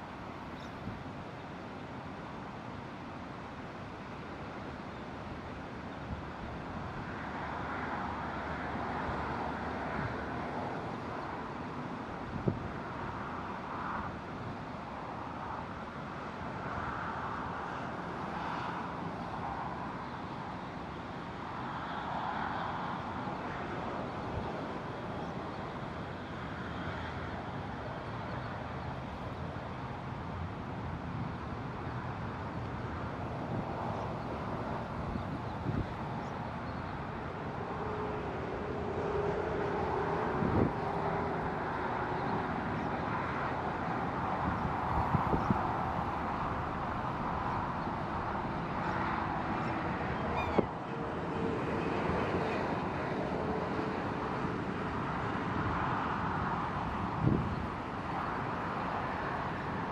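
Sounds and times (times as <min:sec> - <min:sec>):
distant road traffic: 0:00.0 - 0:59.9
cars passing: 0:31.6 - 0:59.9.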